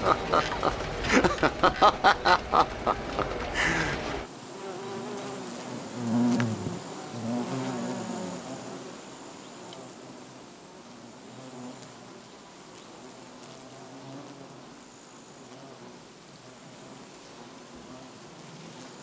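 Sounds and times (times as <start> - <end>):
man laughing: 0.0 - 4.2
bus rumbling: 0.0 - 4.3
bees buzzing: 0.0 - 19.0.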